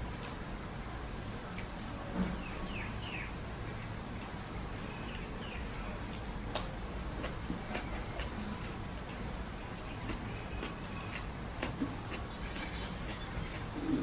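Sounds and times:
chewing noises: 0:07.1 - 0:14.0.

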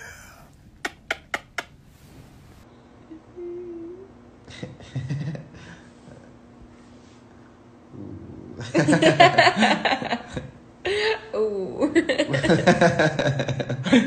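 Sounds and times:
person humming: 0:00.0 - 0:01.6, 0:03.0 - 0:04.2.

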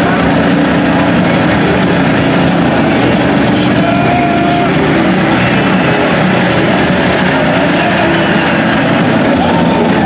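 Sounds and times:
small engine straining: 0:00.0 - 0:10.0.

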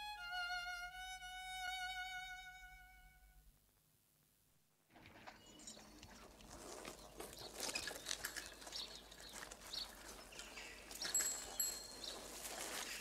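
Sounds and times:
small birds chirping: 0:05.4 - 0:13.0.

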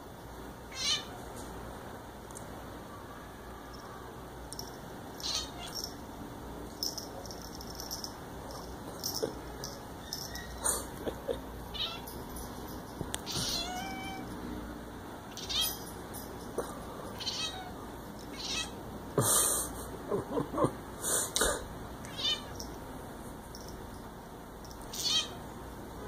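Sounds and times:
cat chirping and trilling: 0:00.7 - 0:01.2, 0:05.2 - 0:06.0, 0:09.6 - 0:11.0, 0:11.7 - 0:12.2, 0:13.3 - 0:14.3, 0:15.3 - 0:15.8, 0:17.2 - 0:18.8, 0:22.1 - 0:22.7, 0:24.9 - 0:25.5.

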